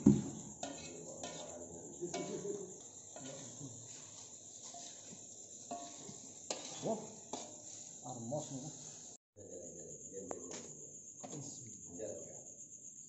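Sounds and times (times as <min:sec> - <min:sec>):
metal spatula scraping a wok: 0:00.2 - 0:09.2
faint background voices: 0:00.7 - 0:04.1.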